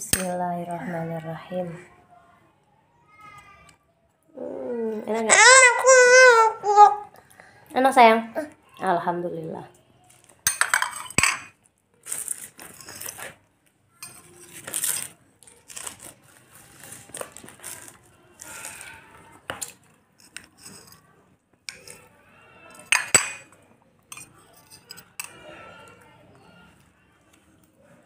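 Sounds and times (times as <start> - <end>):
spoon scraping on glass plate: 12.6 - 13.3, 20.2 - 21.1, 21.7 - 22.1, 24.1 - 25.5.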